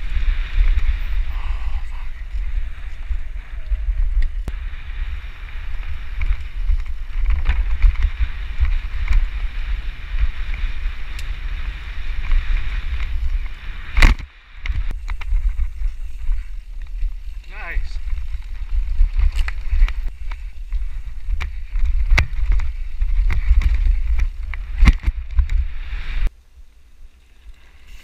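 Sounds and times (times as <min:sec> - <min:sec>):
wind rumble on microphone: 0:00.0 - 0:26.3
bike clicks and knocks: 0:06.0 - 0:09.4, 0:12.1 - 0:17.4, 0:18.1 - 0:25.7.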